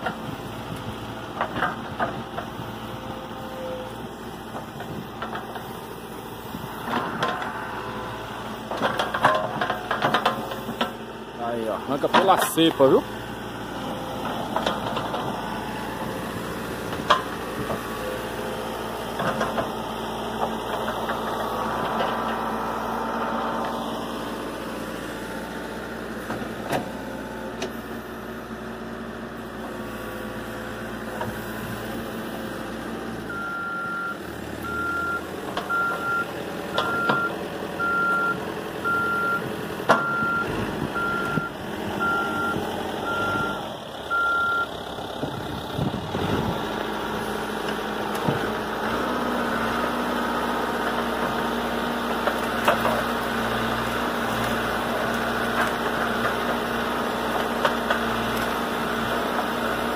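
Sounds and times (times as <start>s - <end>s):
diesel engine running under load: 0.0s - 59.9s
reversing alarm beeping: 33.3s - 44.7s.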